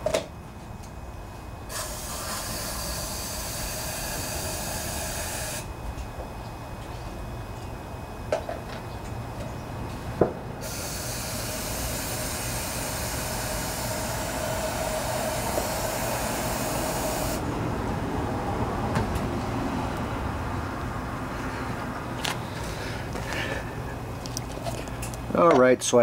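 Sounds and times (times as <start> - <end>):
pressurized spray hissing: 1.7 - 5.6, 10.6 - 17.4.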